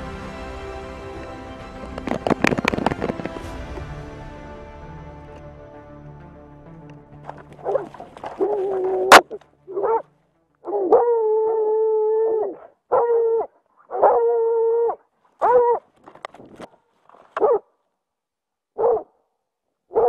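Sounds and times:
hound baying: 7.6s - 15.9s, 17.4s - 17.6s.

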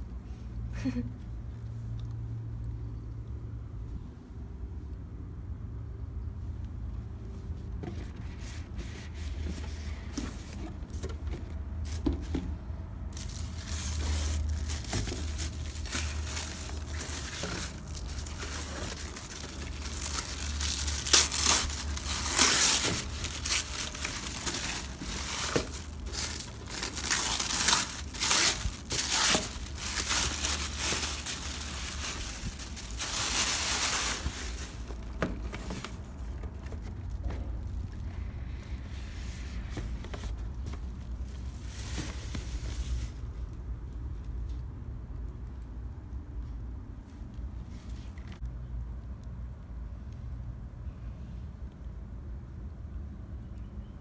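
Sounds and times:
plastic bag crinkling: 13.1s - 38.2s.

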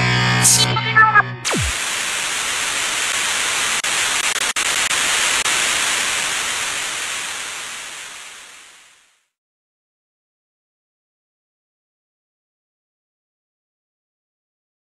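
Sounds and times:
television static hiss: 1.4s - 9.3s.

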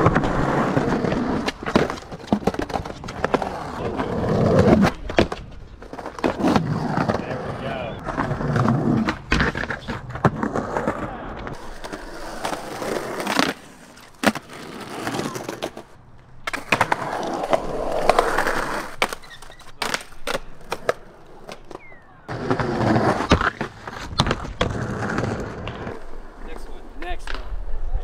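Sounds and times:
skateboard wheels rolling on concrete: 0.0s - 28.0s.

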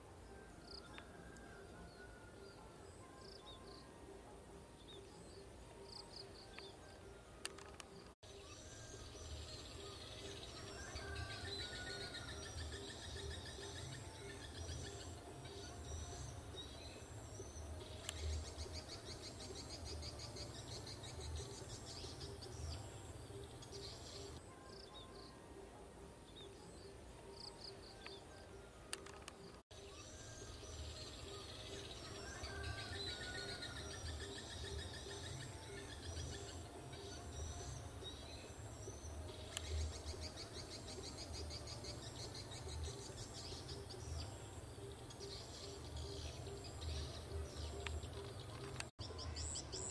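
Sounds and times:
birds chirping and calling: 26.4s - 49.9s.

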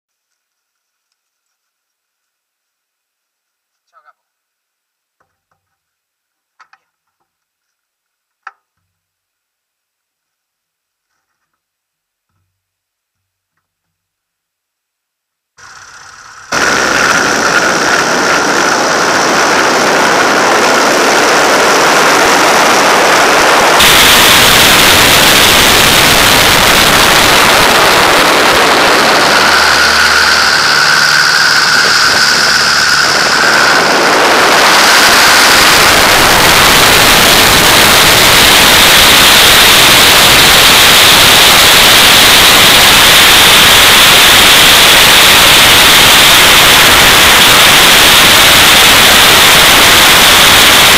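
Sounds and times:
aircraft engine and propeller: 15.6s - 37.6s
thin high steady tones: 15.6s - 50.9s
wind rush: 16.5s - 50.9s.

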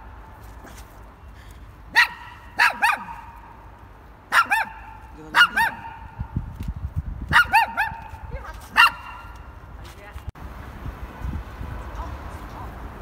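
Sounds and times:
small dog yapping: 2.0s - 3.4s, 4.3s - 6.1s, 7.3s - 9.4s.

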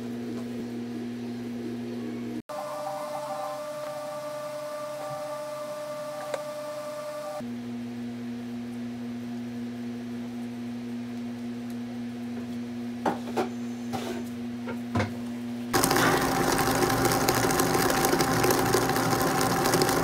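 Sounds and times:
low electrical hum: 0.0s - 20.0s
stand mixer whirring: 15.8s - 20.0s.

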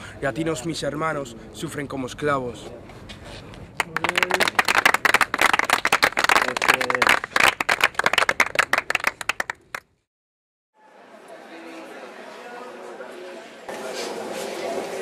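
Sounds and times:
people clapping: 3.8s - 10.0s.

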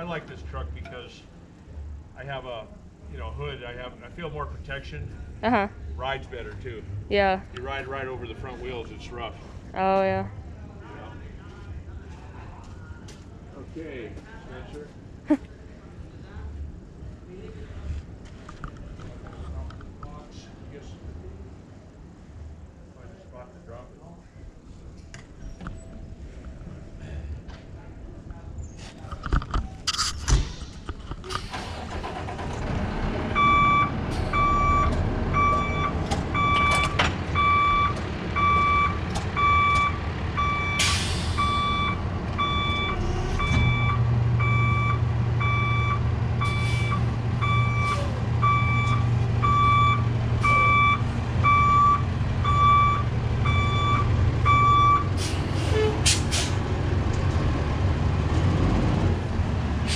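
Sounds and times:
diesel truck engine running: 30.5s - 59.9s
reversing alarm beeping: 33.4s - 55.1s
short air hiss: 55.2s - 56.6s.

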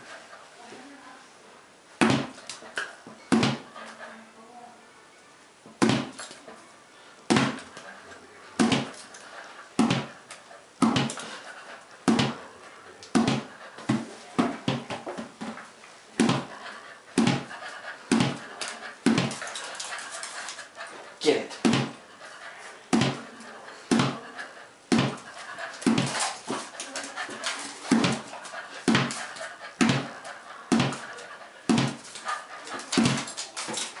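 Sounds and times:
ball bouncing: 3.3s - 3.7s, 7.3s - 7.8s, 8.6s - 9.0s, 9.8s - 10.2s, 10.8s - 11.2s, 12.0s - 12.4s, 13.1s - 15.6s, 16.2s - 16.6s, 17.2s - 17.5s, 18.1s - 19.7s, 21.6s - 22.0s, 22.9s - 23.3s, 23.9s - 24.2s, 24.9s - 31.1s, 31.7s - 32.2s, 32.8s - 33.9s.

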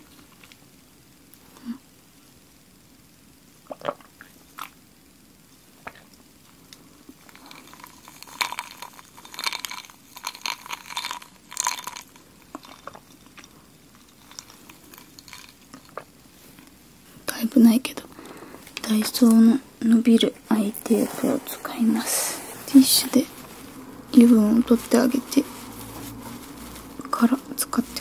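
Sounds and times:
crisp ringing clicks and crunches: 7.3s - 16.1s.

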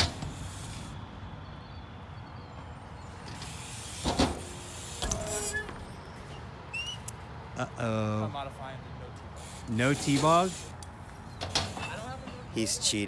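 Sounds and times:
bike tyres rolling on concrete: 0.0s - 7.3s, 8.2s - 13.0s
brief squeak: 5.0s - 7.1s.

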